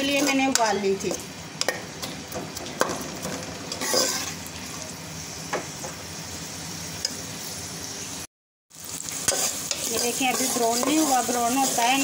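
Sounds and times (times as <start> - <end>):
metal spoon scraping pot: 0.0 - 0.8, 3.7 - 4.4, 9.3 - 11.8
onions sizzling in oil: 0.0 - 12.0.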